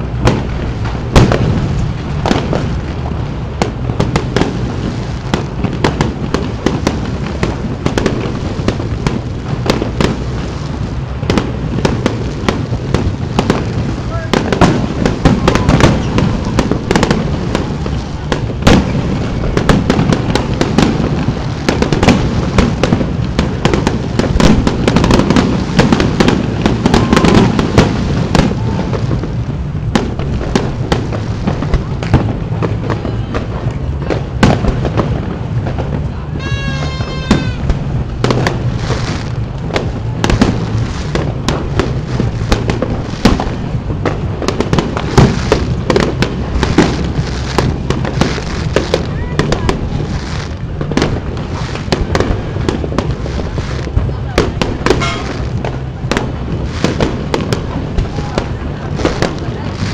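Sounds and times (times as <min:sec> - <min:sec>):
low rumble: 0:00.0 - 0:59.9
fireworks shells bursting: 0:36.4 - 0:55.8.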